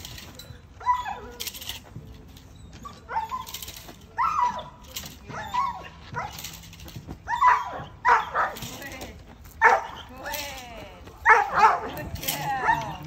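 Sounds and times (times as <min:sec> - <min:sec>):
puppy barking: 0:00.8 - 0:01.4, 0:02.9 - 0:03.5, 0:04.2 - 0:06.4, 0:07.3 - 0:08.6, 0:09.6 - 0:10.1, 0:11.2 - 0:13.0.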